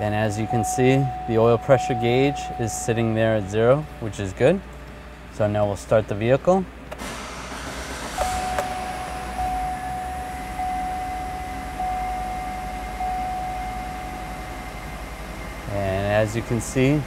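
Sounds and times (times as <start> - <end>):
pulsing high tone: 0.0 - 3.6, 8.0 - 16.3
car engine starting and idling: 6.8 - 17.0.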